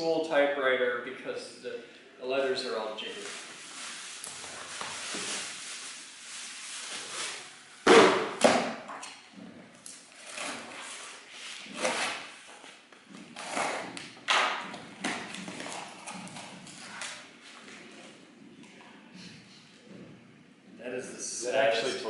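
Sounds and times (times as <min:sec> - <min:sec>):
cardboard boxes rustling and scraping: 0:03.1 - 0:07.6, 0:10.2 - 0:14.0.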